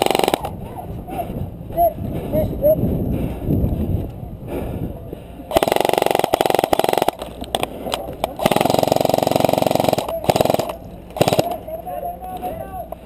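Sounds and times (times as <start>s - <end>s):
airsoft rifle automatic bursts: 0.0s - 0.5s, 5.5s - 7.7s, 8.4s - 11.7s.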